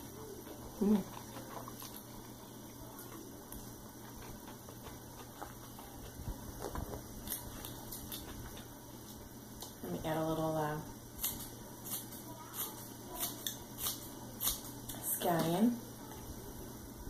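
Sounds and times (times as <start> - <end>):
slurping and chewing noodles: 0.0 - 8.8.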